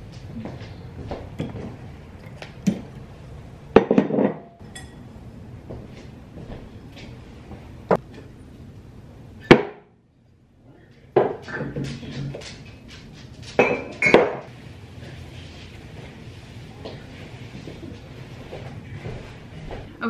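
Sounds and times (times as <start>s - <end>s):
dishes and utensils clattering: 3.8s - 5.1s, 11.2s - 14.5s.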